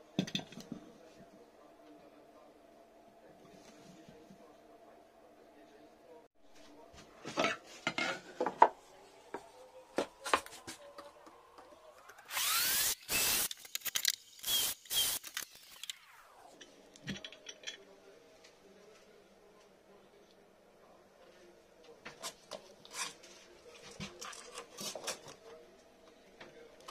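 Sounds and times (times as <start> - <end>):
cordless drill drilling into wood: 12.3 - 13.5, 14.4 - 15.8.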